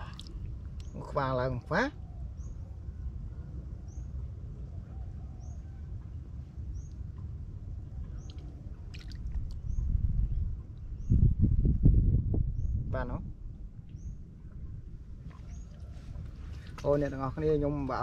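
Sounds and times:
hands sloshing in muddy water: 8.2 - 9.6, 15.2 - 17.2.

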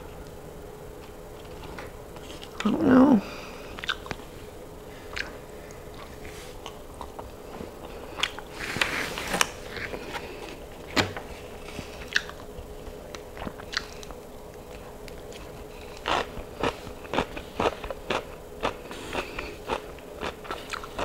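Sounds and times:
faint steady hum: 0.0 - 21.0
person chewing food: 3.6 - 10.9, 11.6 - 21.0.

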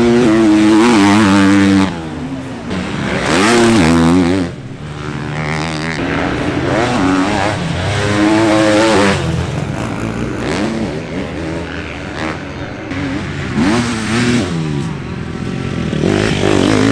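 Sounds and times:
motocross engine revving: 0.0 - 16.9.

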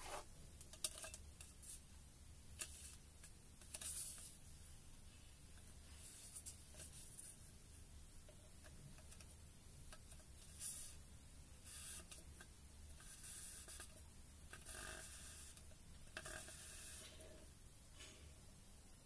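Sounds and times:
hands brushing metal tank: 0.0 - 0.2.

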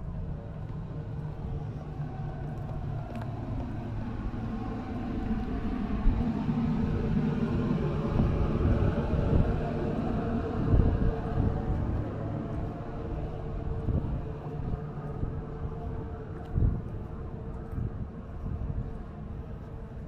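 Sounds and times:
engine rumbling: 0.0 - 20.0.

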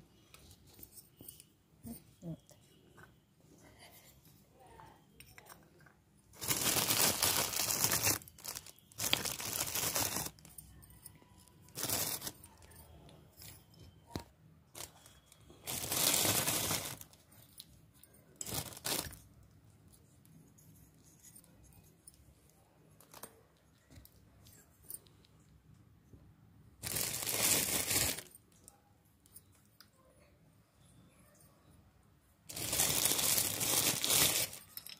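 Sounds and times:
plastic packaging crinkling: 6.4 - 10.6, 11.6 - 12.8, 14.1 - 17.3, 18.4 - 19.3, 26.8 - 28.4, 32.5 - 34.9.

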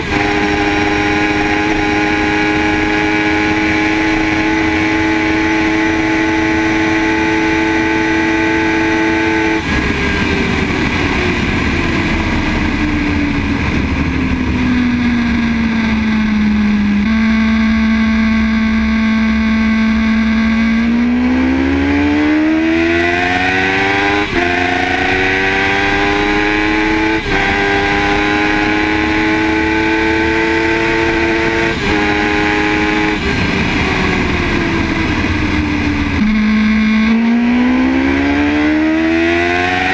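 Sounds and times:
motorcycle engine revving: 0.0 - 39.9
wind rush: 9.5 - 16.9.

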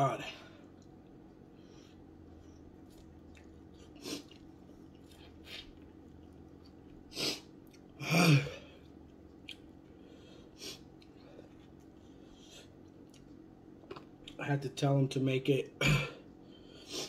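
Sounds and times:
man chewing: 0.6 - 14.4.

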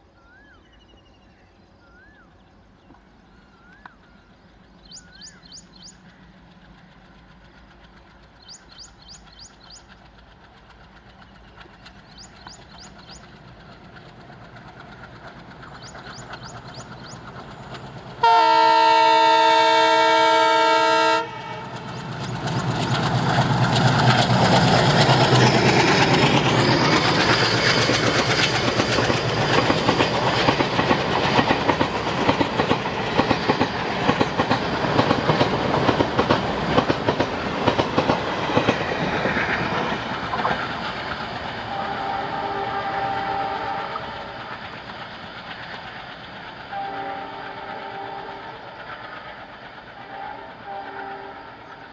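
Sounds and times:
diesel locomotive engine: 0.0 - 51.9
train wheels clacking over rail joints: 4.9 - 51.9
locomotive horn blast: 18.2 - 21.8, 41.6 - 44.2, 46.7 - 48.7, 50.0 - 51.6.

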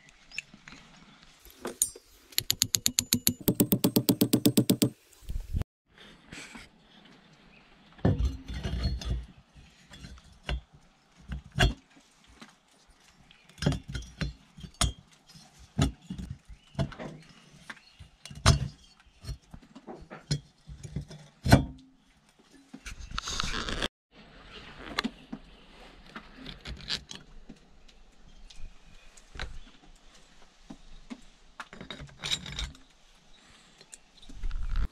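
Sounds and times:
metal clinks and knocks: 1.5 - 5.0.

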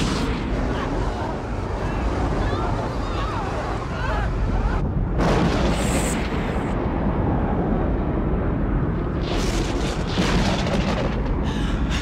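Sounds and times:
deep continuous rumble: 0.0 - 12.0.

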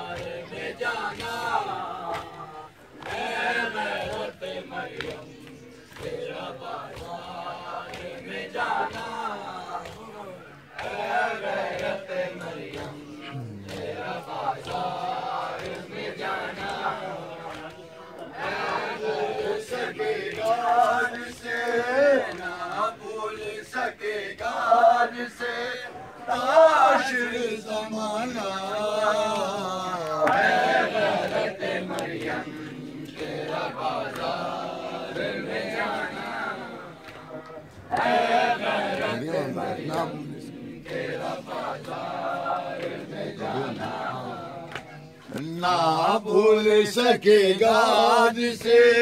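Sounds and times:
men chanting in unison: 0.0 - 49.0
hands slapping chests: 0.1 - 18.6, 30.0 - 45.5.

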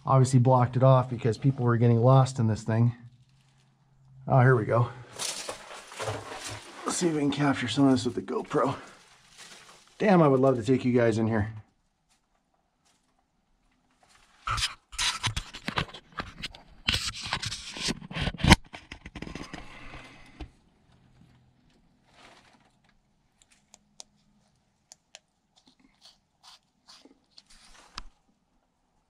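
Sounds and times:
camera scraping and knocking: 14.4 - 20.5
faint clicks and taps: 22.7 - 25.9.

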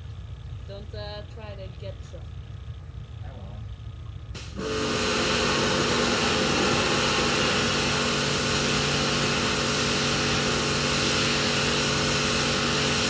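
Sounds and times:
pressure washer motor hum: 4.1 - 13.0
water jet hissing on deck: 4.4 - 13.0.

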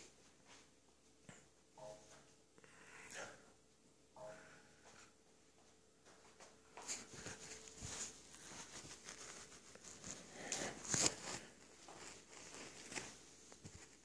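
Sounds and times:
fur rubbing on microphone: 6.9 - 14.0.

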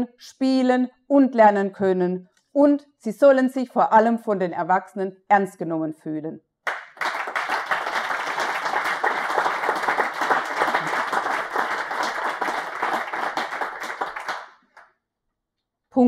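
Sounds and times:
audience applauding: 6.7 - 14.8.

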